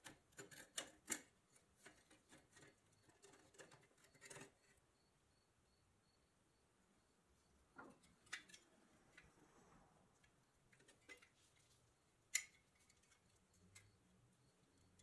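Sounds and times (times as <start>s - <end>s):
metal toy truck clicks: 0.0s - 4.6s, 8.0s - 8.7s, 12.3s - 13.0s.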